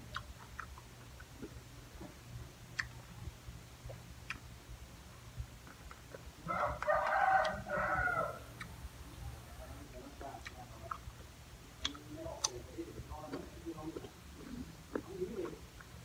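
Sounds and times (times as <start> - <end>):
rooster crowing: 6.4 - 8.5.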